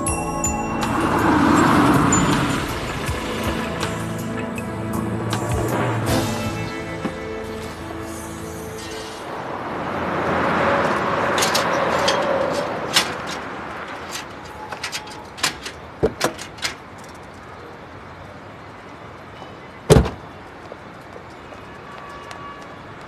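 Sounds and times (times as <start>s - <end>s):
bicycle clicks and rattles: 11.2s - 17.8s.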